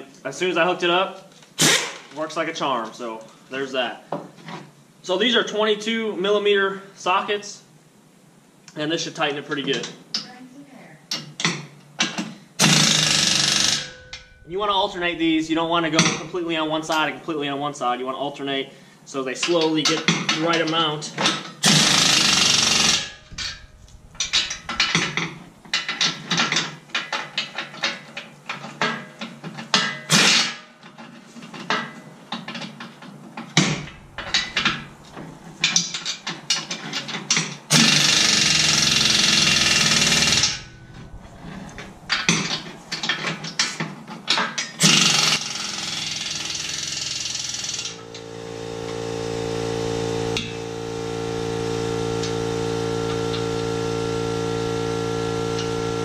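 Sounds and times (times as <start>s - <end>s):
pneumatic impact wrench hammering: 1.6s - 2.1s, 11.2s - 14.4s, 21.2s - 28.0s, 29.7s - 30.7s, 33.6s - 40.8s, 44.3s - 48.2s
steady machine hum: 12.6s - 19.2s, 20.7s - 27.5s, 33.2s - 56.0s.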